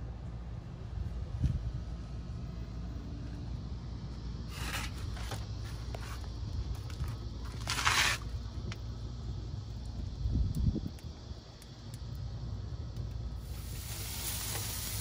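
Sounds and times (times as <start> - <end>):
steady low rumble: 0.0 - 15.0
short scrapes: 4.5 - 6.2, 7.6 - 8.3.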